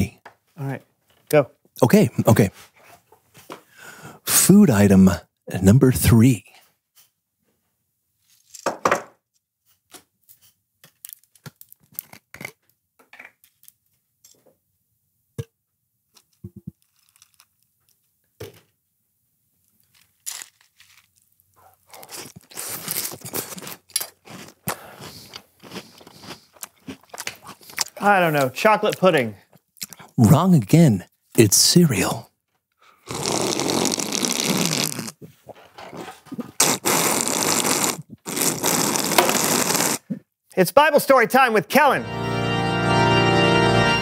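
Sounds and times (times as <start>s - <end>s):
cereal clicks and crinkles: 19.6s - 28.0s
crunching cereal: 19.6s - 28.0s, 33.1s - 35.1s, 36.6s - 40.0s.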